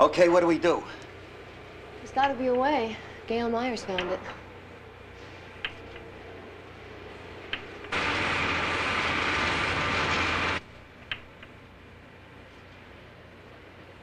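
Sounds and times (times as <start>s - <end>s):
elevator rushing noise: 7.8s - 10.7s.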